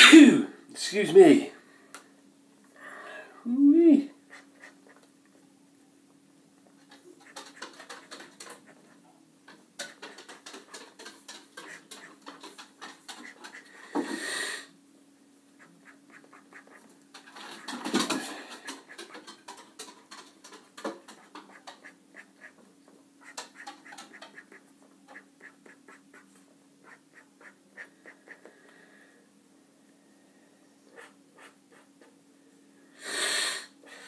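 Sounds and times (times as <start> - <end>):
dog clattering about: 6.8 - 14.0, 15.8 - 22.6, 23.2 - 26.2
marker pen scratching on paper: 11.6 - 13.8.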